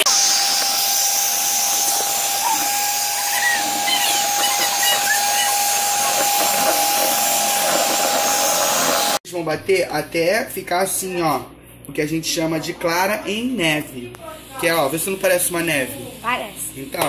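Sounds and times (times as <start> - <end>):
electric hand mixer whining: 0.0 - 9.2.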